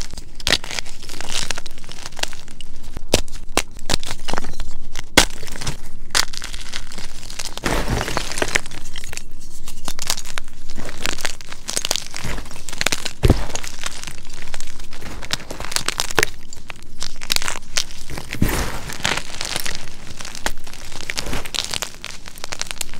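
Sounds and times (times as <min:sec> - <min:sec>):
chalk crunching and cracking: 0:00.0 - 0:22.9.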